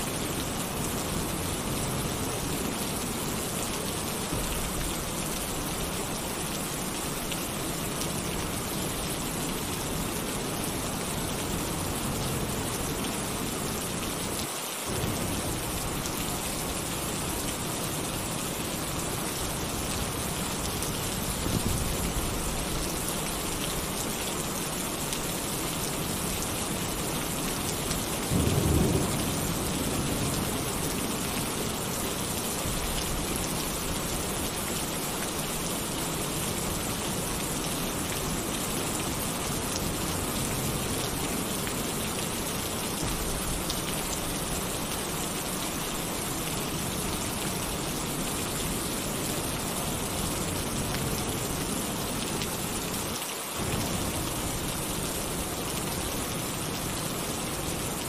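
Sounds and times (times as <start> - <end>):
heavy rain on a tin roof: 0.0 - 58.0
thunder rumbles: 28.2 - 31.8.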